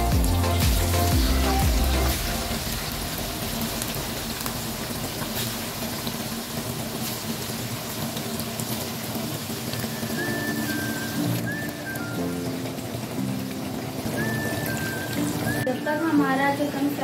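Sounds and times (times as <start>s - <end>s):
chicken deep-frying in oil: 0.0s - 17.0s.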